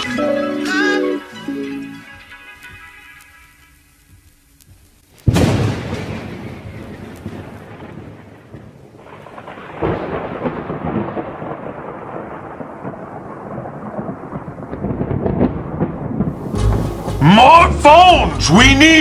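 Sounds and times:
steady rain: 0.8 - 19.0
thunder rumbling: 5.2 - 19.0.

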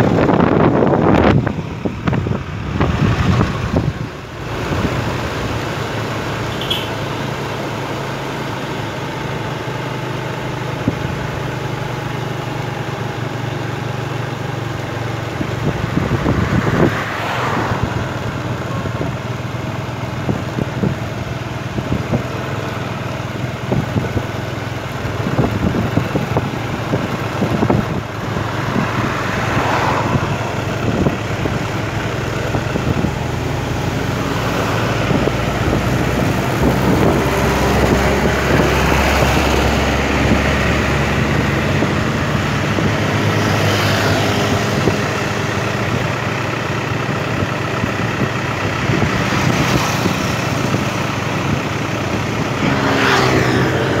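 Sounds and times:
wind noise: 0.0 - 6.7, 12.6 - 54.0
diesel truck engine: 0.0 - 54.0
motorcycle engine running: 0.0 - 54.0
tyre road noise: 0.0 - 54.0.

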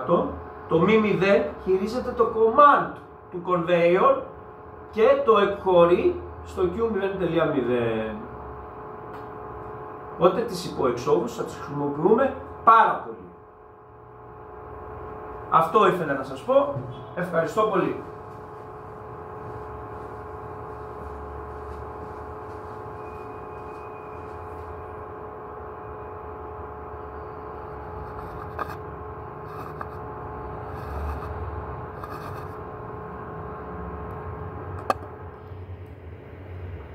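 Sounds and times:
machine hum: 0.0 - 36.9.

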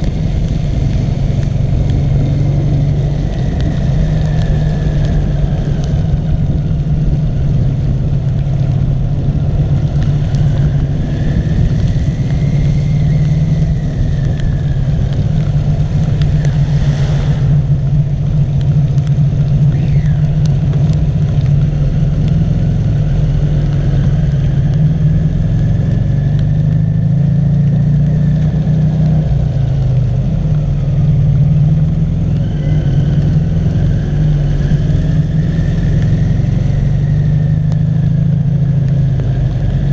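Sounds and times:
brief rush of noise: 16.5 - 17.7.

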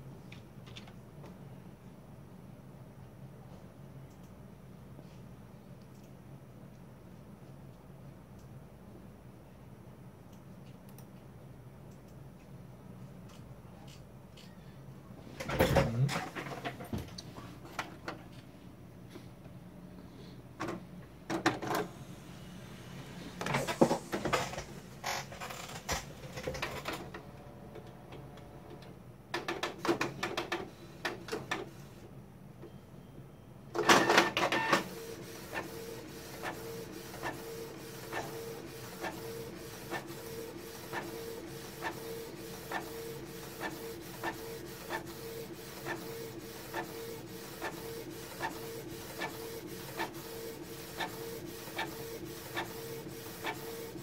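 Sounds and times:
printer mechanism clunks and whirs: 15.4 - 17.2, 20.6 - 22.0, 23.3 - 31.8, 33.7 - 54.0
printer humming: 20.6 - 32.0, 33.7 - 54.0.

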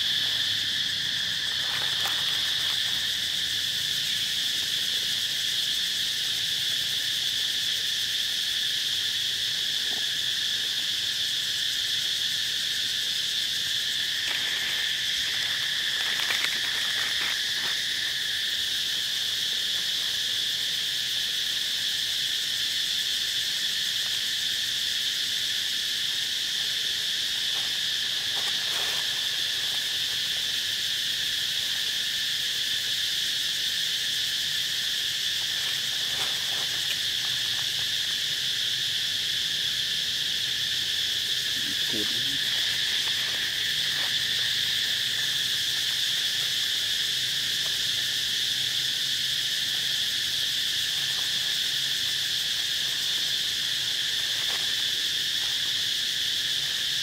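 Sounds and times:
insects chorus: 0.0 - 57.0.

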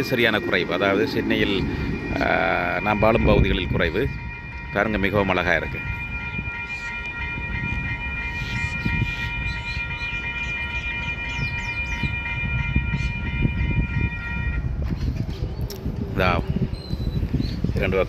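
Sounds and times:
low rumble: 0.0 - 9.8
level crossing bells ringing: 0.0 - 14.7.

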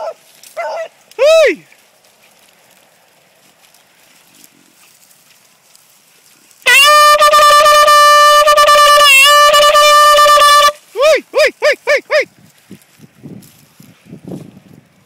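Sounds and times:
hunting horn long note: 6.7 - 10.8.

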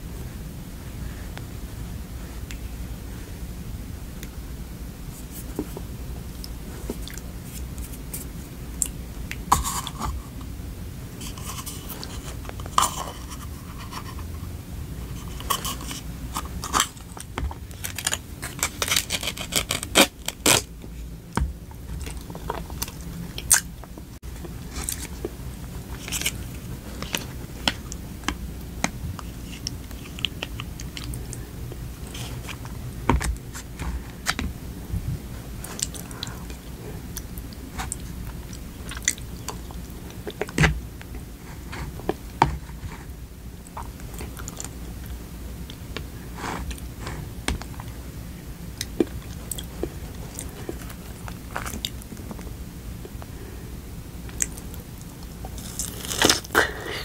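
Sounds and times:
steady low hum: 0.0 - 57.0
plastic cup crinkling: 15.0 - 20.7
spoon scraping plastic cup: 15.1 - 20.0.

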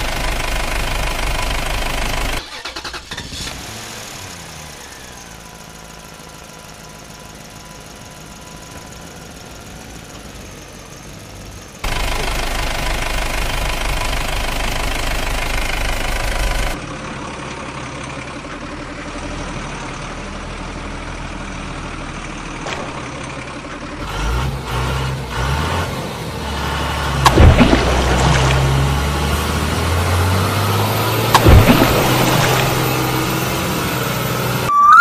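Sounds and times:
truck engine idling and revving: 0.0 - 35.0
sharp click: 31.3 - 32.9.

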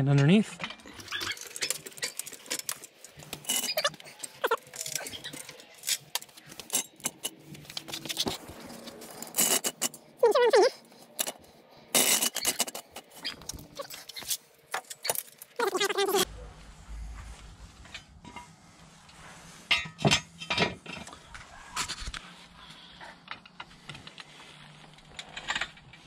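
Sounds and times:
metal jack clanks and rattles: 0.1 - 8.3, 9.2 - 15.5.

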